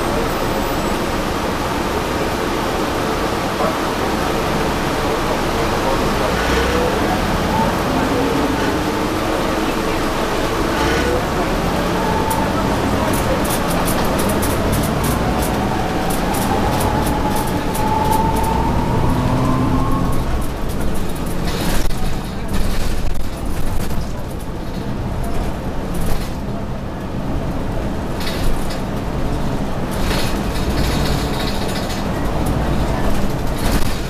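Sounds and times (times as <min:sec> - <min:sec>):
bus drivetrain humming and whining: 0:00.0 - 0:34.0.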